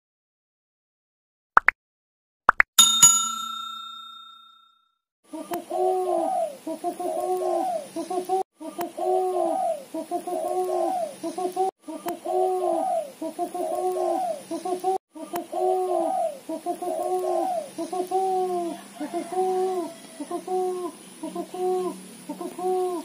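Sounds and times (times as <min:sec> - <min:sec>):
dove chattering coo call: 0:05.4 - 0:23.0.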